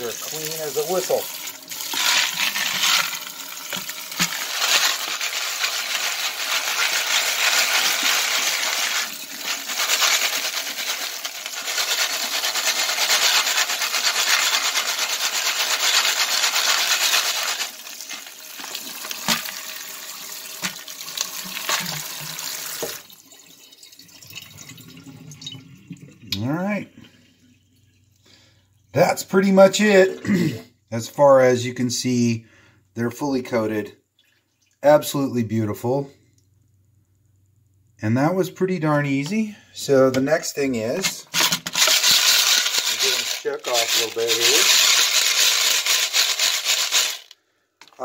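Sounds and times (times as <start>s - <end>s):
tap water pouring into a sink: 0.0s - 12.9s, 17.1s - 29.0s, 34.1s - 34.8s.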